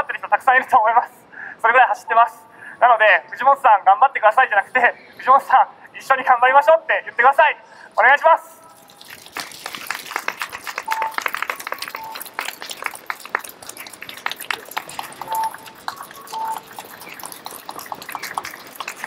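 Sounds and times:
crowd applause: 0:09.4 - 0:19.0
short high beeps: 0:10.9 - 0:11.2, 0:11.8 - 0:12.2, 0:15.2 - 0:16.7.

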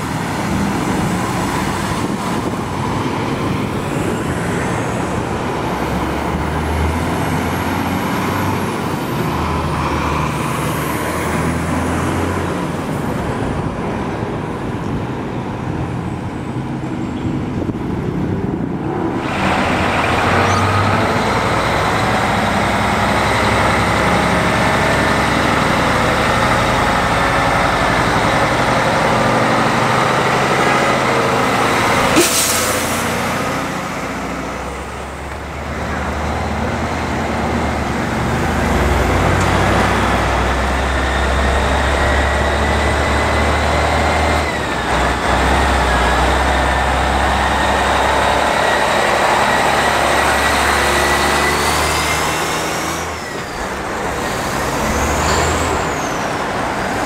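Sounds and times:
truck diesel engine rumble: 0:00.0 - 0:57.0.

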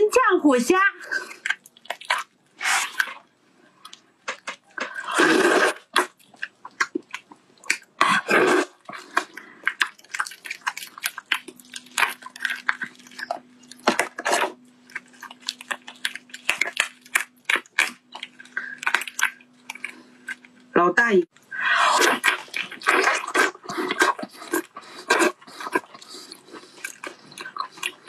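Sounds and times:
shrimp shells cracking: 0:09.2 - 0:14.2, 0:14.8 - 0:20.5.

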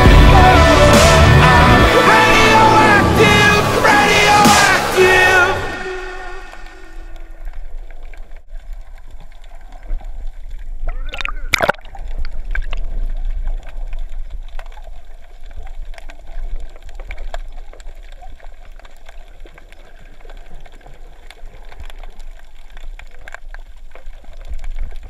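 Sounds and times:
underwater low rumble: 0:06.0 - 0:25.0
clicks and crackles: 0:07.1 - 0:25.0.

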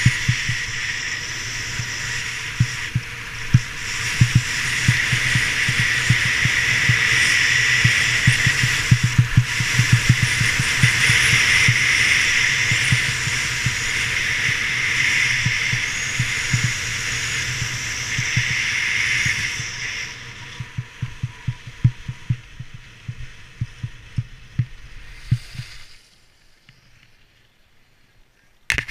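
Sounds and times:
skis hissing on packed snow: 0:00.0 - 0:21.6, 0:24.8 - 0:27.2
wind rushing over microphone: 0:00.0 - 0:26.0
low buffeting thumps: 0:02.4 - 0:07.1, 0:15.4 - 0:25.7.

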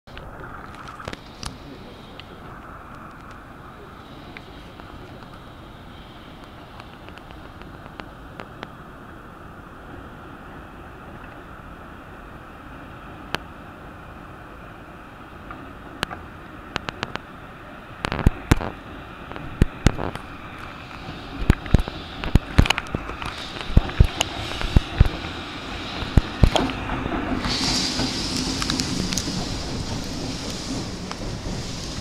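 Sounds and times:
background hiss: 0:00.1 - 0:10.8, 0:16.2 - 0:32.0
train wheels clacking over rail joints: 0:18.0 - 0:32.0.

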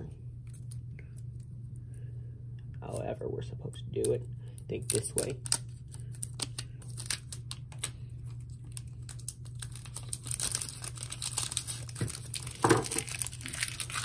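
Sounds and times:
plastic film crinkling and tearing: 0:04.7 - 0:14.0.

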